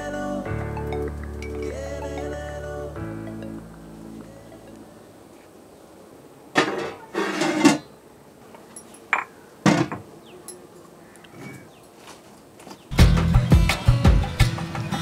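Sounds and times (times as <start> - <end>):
metal lid clanking and scraping: 6.6 - 7.9.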